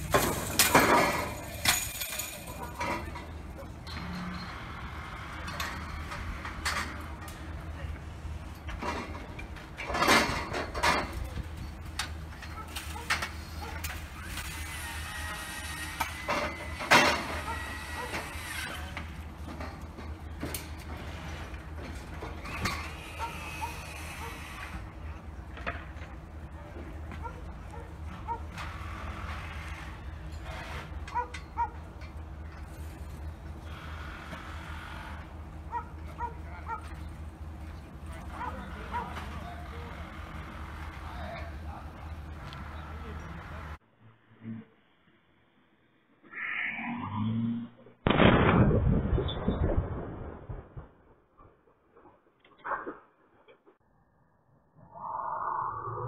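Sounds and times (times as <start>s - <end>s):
wreckage clinking and scraping: 0.0s - 4.7s
faint machine whine: 0.0s - 43.8s
low outdoor rumble: 0.0s - 52.4s.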